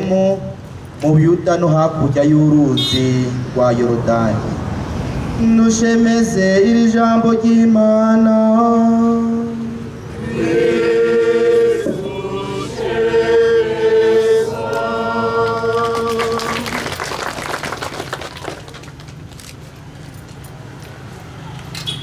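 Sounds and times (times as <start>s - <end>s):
choir and congregation singing: 10.0s - 16.8s.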